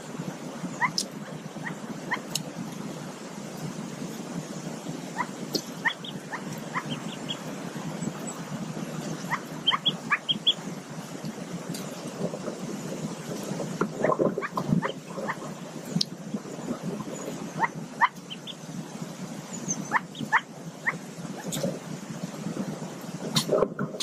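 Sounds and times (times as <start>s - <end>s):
ducklings peeping: 0.7s - 2.4s, 5.1s - 10.7s, 14.0s - 15.4s, 17.0s - 18.7s, 19.6s - 21.6s.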